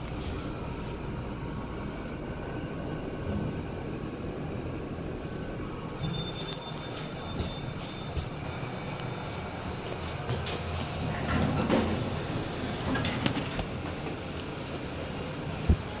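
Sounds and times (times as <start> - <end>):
lift car low rumble: 0.0 - 16.0
high electronic chime: 6.0 - 8.2.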